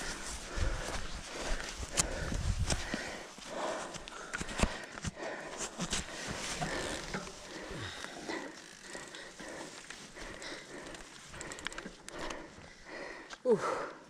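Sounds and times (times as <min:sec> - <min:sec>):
rustling: 0:00.0 - 0:12.5
person breathing hard: 0:00.0 - 0:14.0
cycling shoe clicks: 0:08.0 - 0:12.5.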